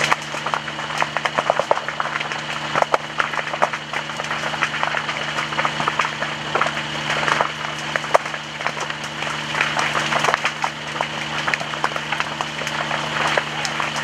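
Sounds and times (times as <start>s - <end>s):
burning brush crackling: 0.0s - 14.0s
low hum: 0.0s - 14.0s
sharp snaps and pops: 0.0s - 14.0s.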